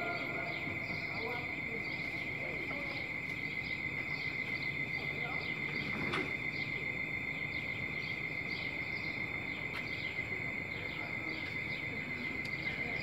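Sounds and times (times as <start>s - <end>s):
insect trilling: 0.0s - 13.0s.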